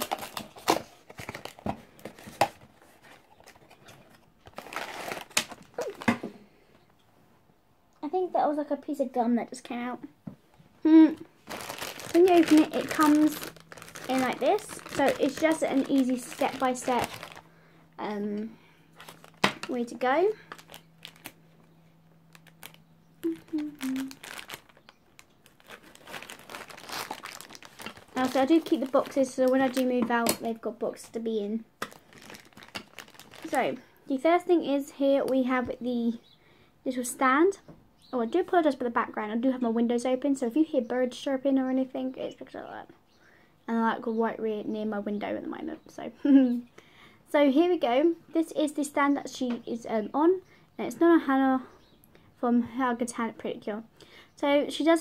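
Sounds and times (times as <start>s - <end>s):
packaging crinkling and tearing: 0.0s - 6.2s, 11.4s - 17.5s, 19.0s - 21.4s, 22.2s - 31.2s, 31.8s - 33.8s
packaging rustling: 0.0s - 6.3s, 11.4s - 17.5s, 18.9s - 21.4s, 22.2s - 31.1s, 31.8s - 33.8s.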